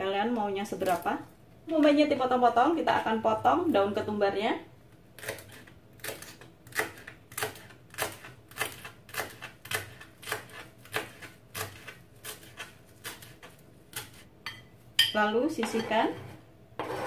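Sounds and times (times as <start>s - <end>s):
knife chopping on cutting board: 5.2s - 14.2s.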